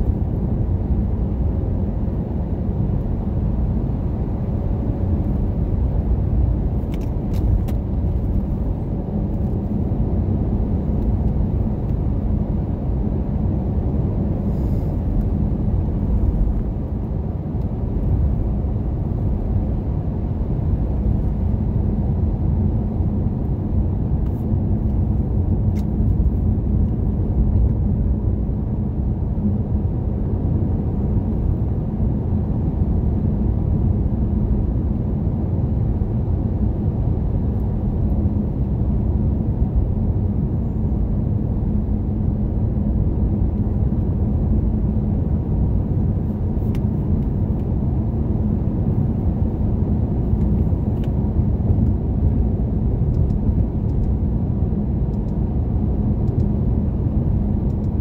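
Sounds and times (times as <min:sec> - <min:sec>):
car driving on paved road: 0:00.0 - 0:58.0.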